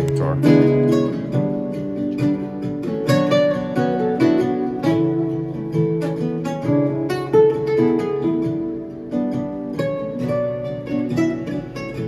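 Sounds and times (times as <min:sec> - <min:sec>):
solo acoustic guitar: 0:00.0 - 0:12.0.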